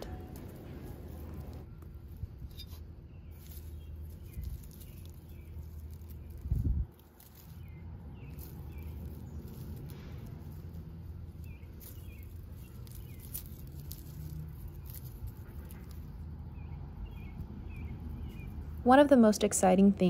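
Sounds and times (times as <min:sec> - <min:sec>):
dry soil and leaves crackling: 0:00.0 - 0:20.0
low steady rumble: 0:00.0 - 0:20.0
bird chirping: 0:11.3 - 0:18.8.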